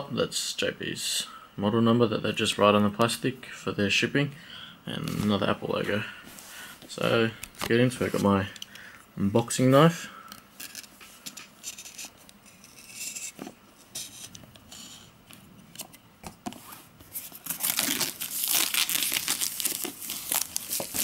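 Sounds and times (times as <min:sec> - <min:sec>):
plastic film tearing and crinkling: 0:17.2 - 0:21.0
knife cutting plastic wrap: 0:17.3 - 0:21.0.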